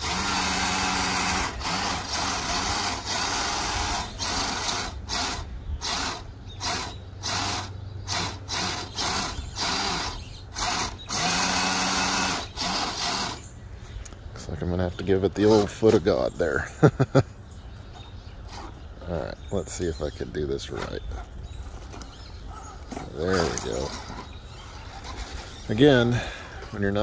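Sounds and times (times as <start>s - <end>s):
electric motor whining: 0.0s - 13.5s, 22.8s - 27.0s.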